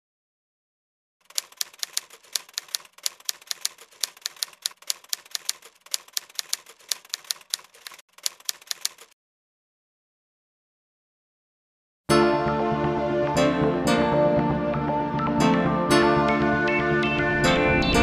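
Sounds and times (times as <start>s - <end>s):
typewriter keys clacking: 1.2s - 9.2s.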